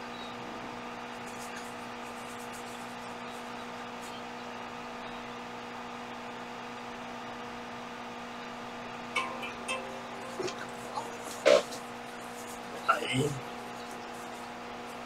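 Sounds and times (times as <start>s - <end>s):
electrical mains hum: 0.0s - 15.0s
constant hiss: 9.2s - 15.0s.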